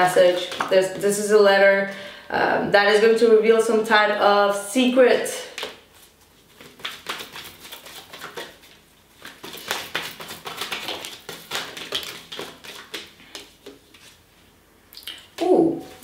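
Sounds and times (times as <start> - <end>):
cards being shuffled: 0.2 - 0.8, 5.6 - 14.2.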